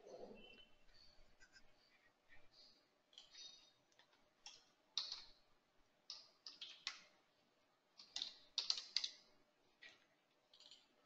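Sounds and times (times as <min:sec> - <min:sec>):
computer keyboard typing: 0:03.1 - 0:05.4, 0:06.1 - 0:07.1, 0:08.0 - 0:10.9.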